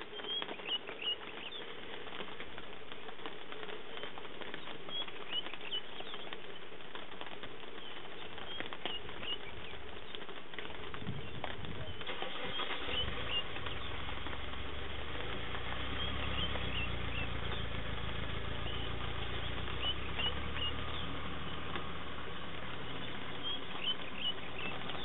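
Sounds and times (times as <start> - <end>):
light rain pattering: 0.0 - 25.0
high bird chirps: 0.1 - 1.6, 11.2 - 14.0, 15.8 - 17.8, 18.5 - 25.0
low steady rumble: 10.8 - 25.0.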